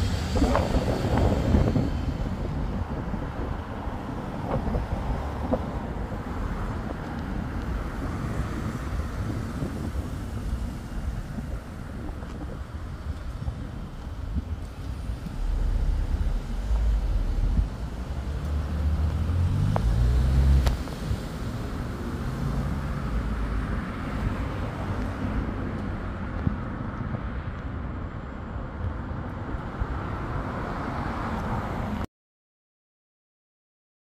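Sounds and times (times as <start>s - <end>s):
low traffic rumble: 0.0s - 32.1s
vehicle engine accelerating: 14.4s - 25.1s.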